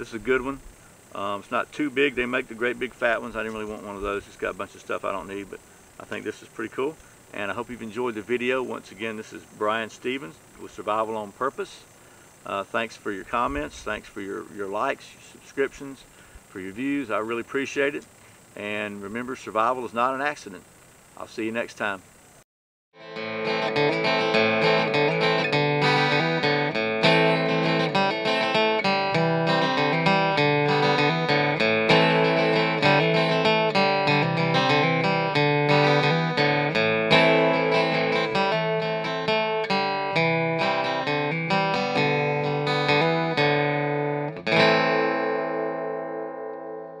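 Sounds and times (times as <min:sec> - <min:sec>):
plucked guitar music: 0:00.0 - 0:11.3, 0:23.0 - 0:47.0.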